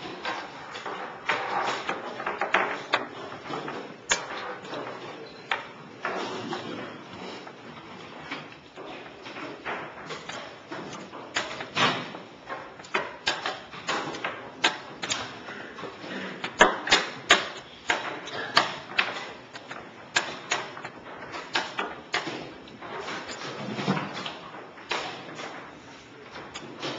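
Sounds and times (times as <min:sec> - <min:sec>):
chess pieces clacking on board: 0:00.2 - 0:07.5.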